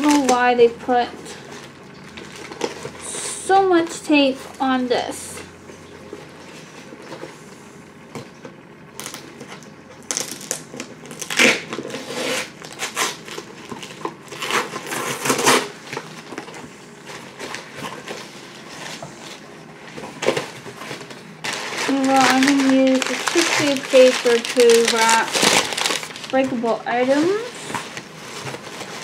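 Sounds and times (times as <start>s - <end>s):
paper and cardboard crinkling: 0.0s - 3.1s, 9.0s - 29.0s
packing tape ripping: 10.0s - 16.5s, 21.0s - 26.4s.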